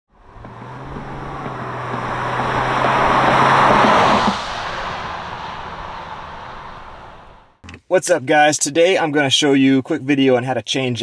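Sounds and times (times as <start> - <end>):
car tyre and road noise: 0.1 - 7.6
low engine hum: 0.1 - 7.6.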